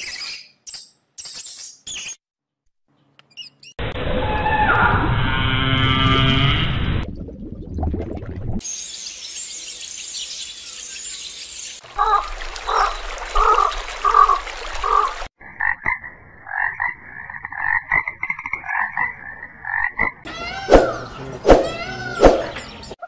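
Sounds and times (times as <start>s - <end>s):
frogs croaking: 12.0s - 20.3s.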